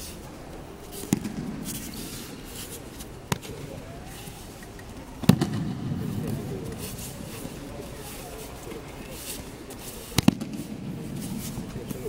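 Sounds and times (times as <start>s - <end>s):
bodies slapping on mats: 10.2s - 10.8s.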